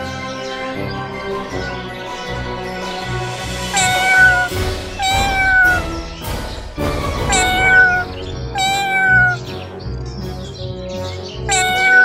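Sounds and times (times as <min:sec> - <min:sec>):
background music: 0:00.0 - 0:12.0
cat meowing: 0:03.7 - 0:06.2, 0:07.2 - 0:09.6, 0:11.4 - 0:12.0.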